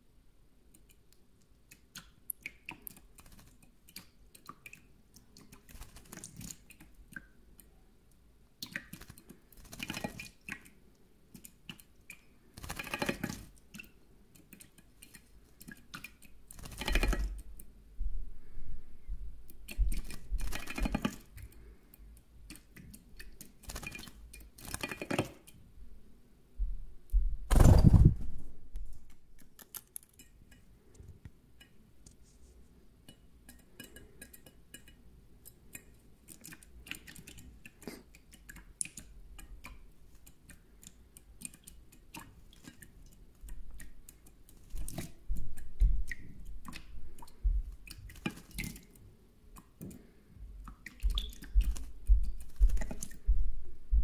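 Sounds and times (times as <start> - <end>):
drips on metal dish: 33.0 - 36.0.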